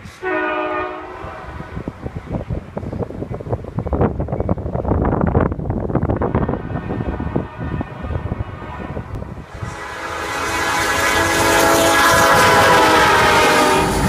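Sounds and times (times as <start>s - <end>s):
locomotive air horn: 0.0s - 1.9s, 6.2s - 14.0s
locomotive engines rumbling: 0.0s - 14.0s.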